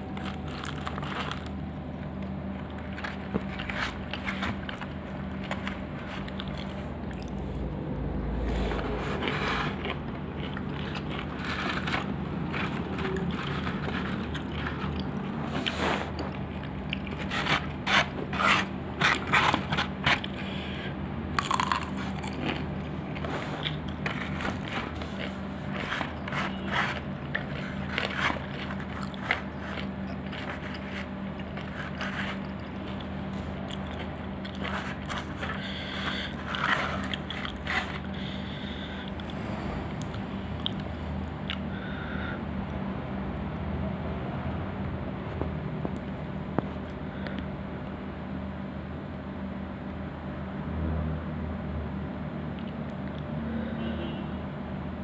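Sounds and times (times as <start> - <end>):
crunching and chewing: 0.0 - 41.7
steady low hum: 0.0 - 55.0
rustling in styrofoam box: 0.1 - 1.6, 2.6 - 6.9, 8.5 - 20.4, 22.0 - 38.4.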